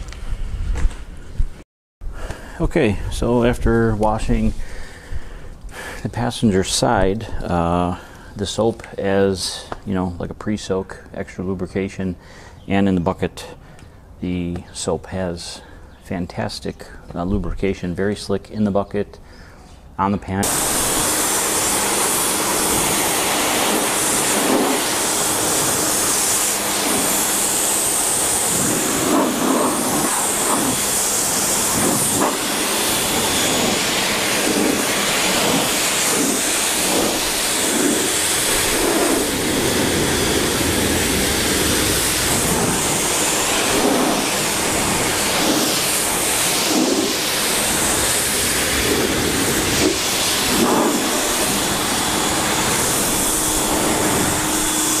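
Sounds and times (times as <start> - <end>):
pressure washer spraying water: 20.4 - 55.0.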